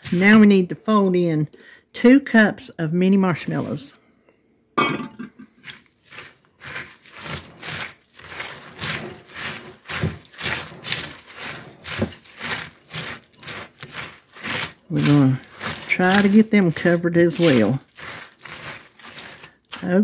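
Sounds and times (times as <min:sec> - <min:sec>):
spatula scraping sticky mix in bowl: 0:00.0 - 0:00.6, 0:03.3 - 0:03.9, 0:05.5 - 0:20.0.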